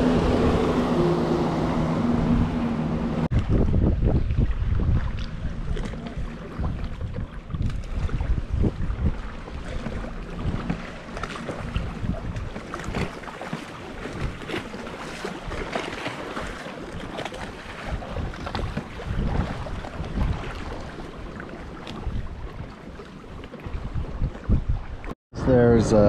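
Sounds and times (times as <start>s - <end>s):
wind gusting on microphone: 0.0s - 13.2s, 17.8s - 21.0s, 23.7s - 26.0s
waves slapping against hull: 0.0s - 25.2s.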